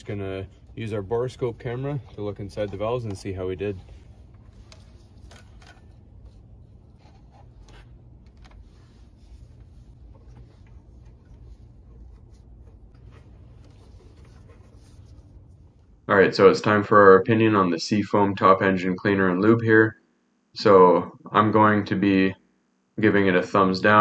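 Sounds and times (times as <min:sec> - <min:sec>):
cable rubbing and scraping: 0:00.0 - 0:15.7
low steady hum: 0:00.0 - 0:24.0.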